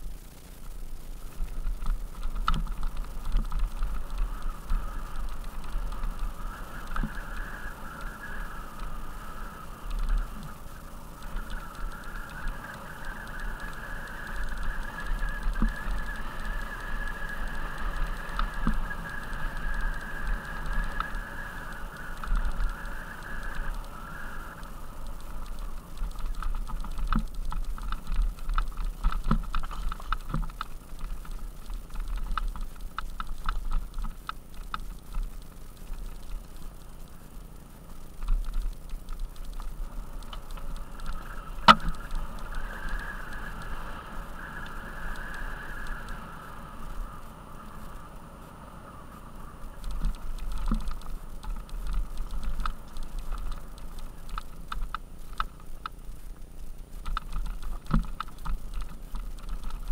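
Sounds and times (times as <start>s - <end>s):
bike rattling and clicking: 0.0s - 48.0s, 49.2s - 59.9s
low wind rumble: 0.0s - 59.9s
steady buzz: 0.0s - 59.9s.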